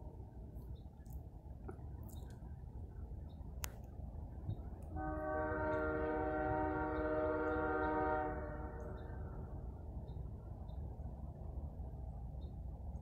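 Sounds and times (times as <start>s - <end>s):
distant locomotive horn: 4.9s - 9.7s.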